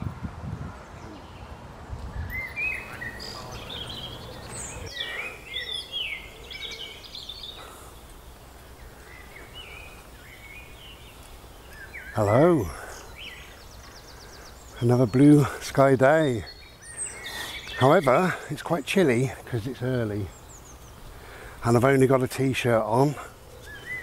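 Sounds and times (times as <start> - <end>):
songbirds singing: 0.4 - 24.0.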